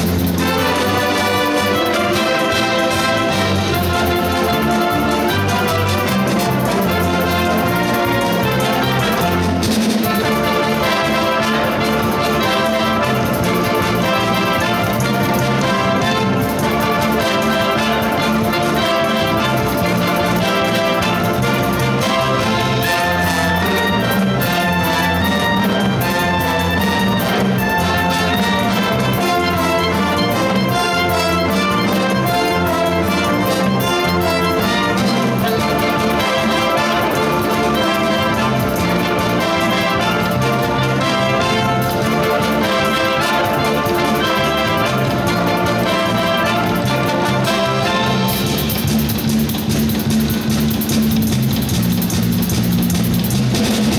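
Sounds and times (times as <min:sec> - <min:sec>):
wind band playing: 0:00.0 - 0:50.9
drum kit: 0:00.0 - 0:53.9
electric bass: 0:44.7 - 0:53.9.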